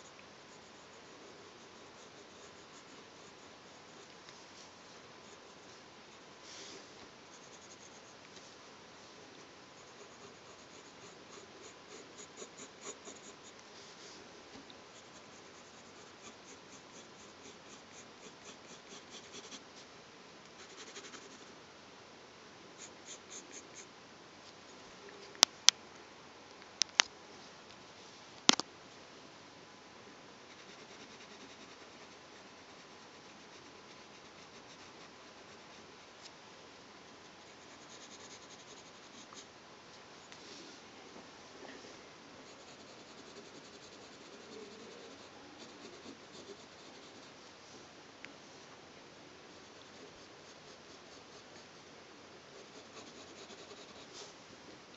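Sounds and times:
pencil scratching on paper: 0:00.0 - 0:04.2, 0:07.3 - 0:08.2, 0:09.8 - 0:13.6, 0:14.9 - 0:19.6, 0:20.6 - 0:21.5, 0:30.5 - 0:35.8, 0:37.4 - 0:39.4, 0:42.5 - 0:47.4, 0:52.6 - 0:54.3.

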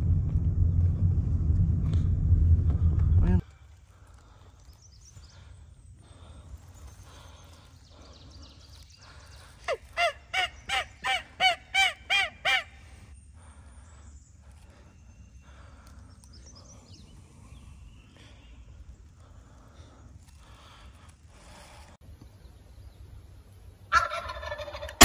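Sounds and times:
turkey yelps: 0:09.7 - 0:12.7, 0:23.9 - 0:25.0.

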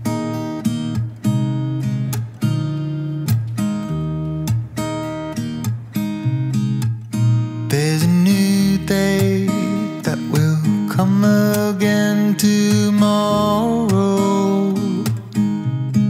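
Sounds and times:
acoustic guitar strumming chords: 0:00.0 - 0:16.0.

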